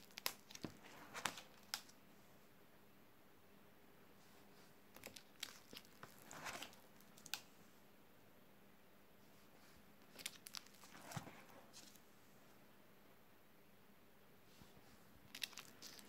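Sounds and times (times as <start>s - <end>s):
plastic sheets crinkling: 0.0s - 1.9s, 4.9s - 7.4s, 10.0s - 12.0s, 15.3s - 16.0s.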